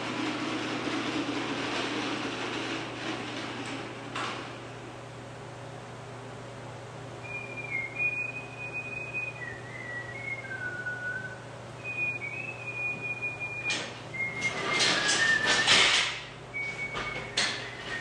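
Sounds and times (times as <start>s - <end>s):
metal hoist rattling and clanking: 0.0s - 4.6s, 13.5s - 18.0s
man whistling a tune: 7.2s - 18.0s.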